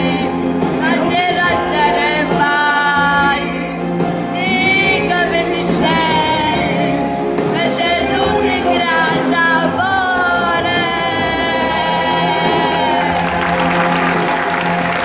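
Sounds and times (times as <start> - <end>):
backing music: 0.0 - 15.0
audience applause: 12.3 - 15.0.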